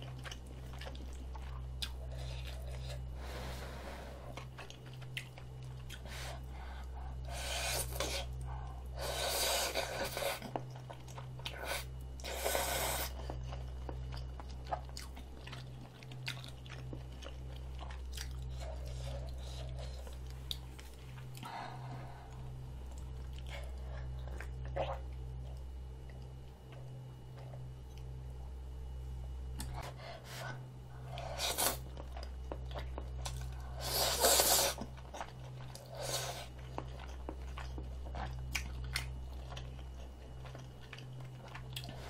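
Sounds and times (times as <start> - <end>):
low electrical hum: 0.0 - 42.0
wet chewing and mouth clicks: 4.3 - 6.1, 9.7 - 21.5, 31.8 - 42.0.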